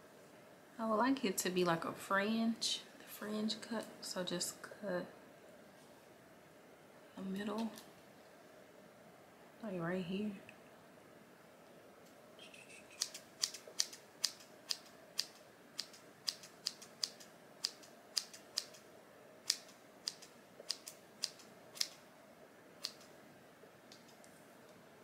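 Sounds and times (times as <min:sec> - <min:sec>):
scissors snipping hair: 0:12.9 - 0:18.8, 0:19.5 - 0:22.0, 0:22.8 - 0:23.1.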